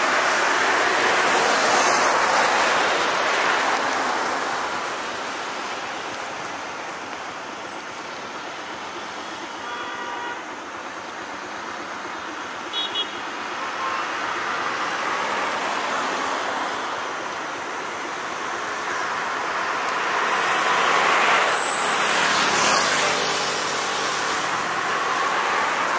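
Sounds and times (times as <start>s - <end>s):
road traffic passing: 0.0s - 25.9s
faint vehicle horn: 9.6s - 10.5s.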